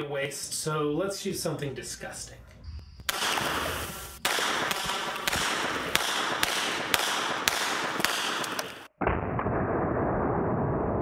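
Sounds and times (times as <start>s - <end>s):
steady hiss: 3.1s - 8.9s
gunshot cracks: 3.1s - 9.6s.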